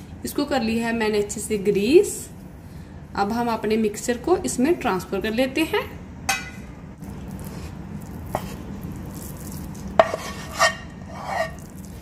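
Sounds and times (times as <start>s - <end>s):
utensil scraping metal cookware: 10.0s - 11.7s.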